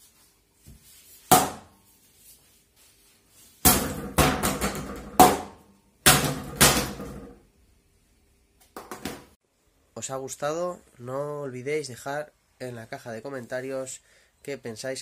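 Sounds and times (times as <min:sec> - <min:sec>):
foam sword hitting plastic bottle: 0:01.3 - 0:01.8, 0:03.6 - 0:07.4.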